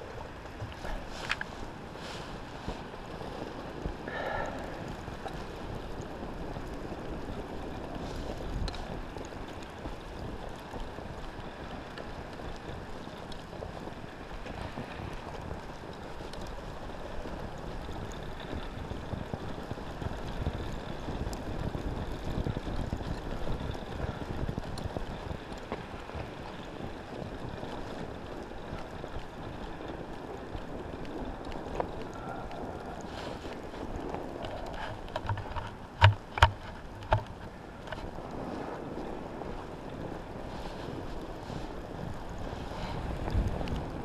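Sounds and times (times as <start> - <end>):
two-stroke bicycle engine running: 0.0 - 44.0
wind noise on microphone: 0.0 - 44.0.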